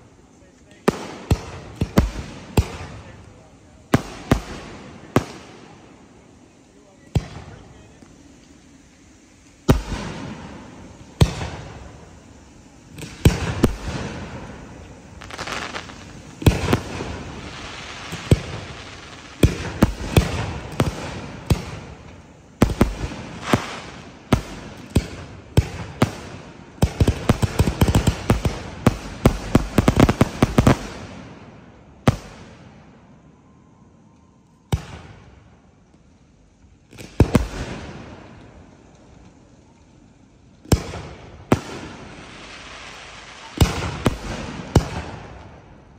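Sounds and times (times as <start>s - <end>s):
firework crackle: 0.0s - 45.9s
firework shells booming: 0.8s - 5.9s, 9.7s - 32.5s, 43.2s - 45.7s.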